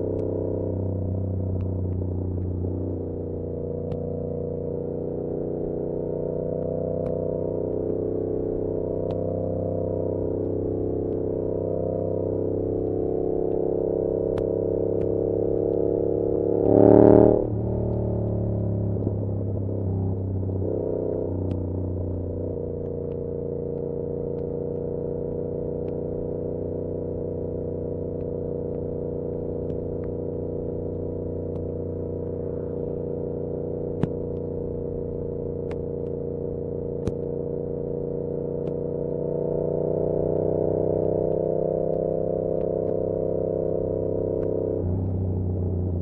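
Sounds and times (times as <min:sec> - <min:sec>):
motorcycle engine cruising: 0:00.0 - 0:46.0.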